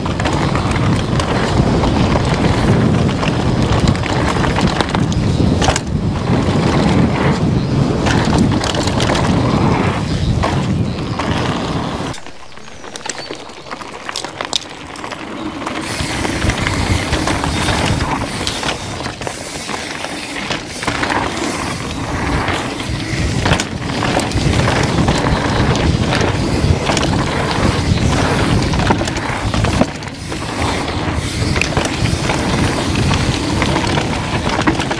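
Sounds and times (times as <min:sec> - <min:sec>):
tyre roar on dirt: 0:00.0 - 0:34.9
wind buffeting on microphone: 0:00.0 - 0:34.9
chain and suspension rattles: 0:12.0 - 0:20.6, 0:31.4 - 0:34.9.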